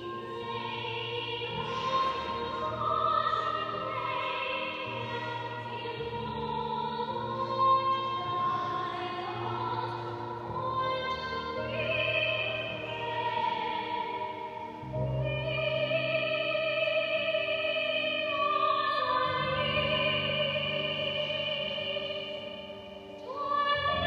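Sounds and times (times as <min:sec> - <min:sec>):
woman singing operatically: 0:00.0 - 0:22.5, 0:23.2 - 0:24.0.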